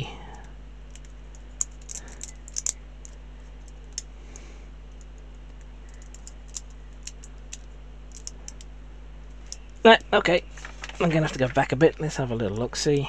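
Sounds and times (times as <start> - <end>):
low electrical hum: 0.0 - 13.0
plastic parts clicking together: 0.3 - 4.1, 4.9 - 8.7.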